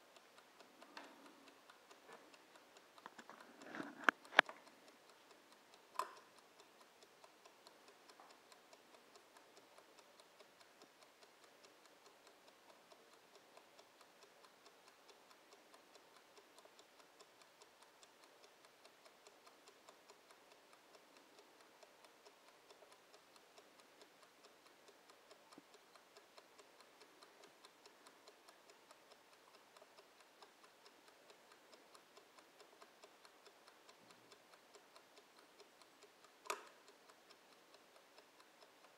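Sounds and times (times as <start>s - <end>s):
kitchen timer ticking: 0.0s - 38.9s
sharp click: 36.3s - 36.8s.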